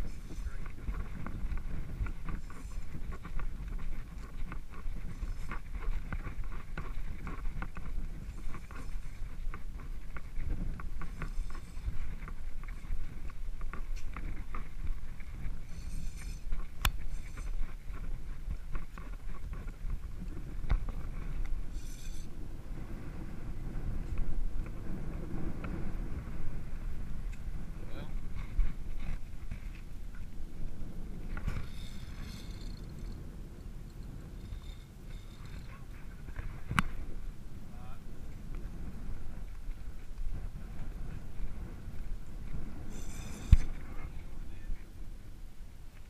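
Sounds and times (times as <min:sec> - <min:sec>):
wind on microphone: 0:00.0 - 0:46.0.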